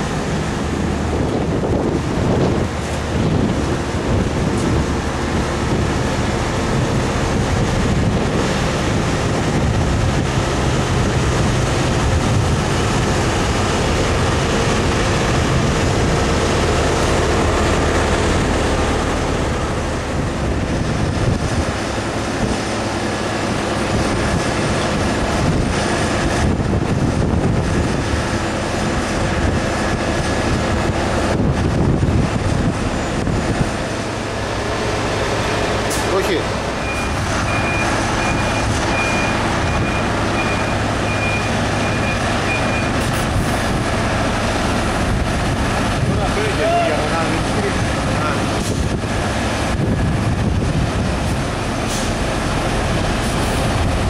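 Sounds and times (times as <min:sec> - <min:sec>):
diesel paving machine running: 0:00.0 - 0:54.0.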